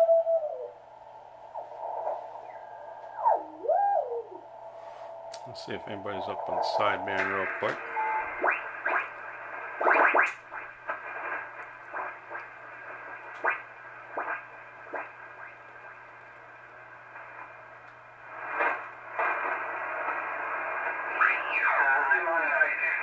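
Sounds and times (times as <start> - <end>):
radio band noise hiss: 1.2 - 23.0
garbled radio signals and whistles: 1.6 - 15.5.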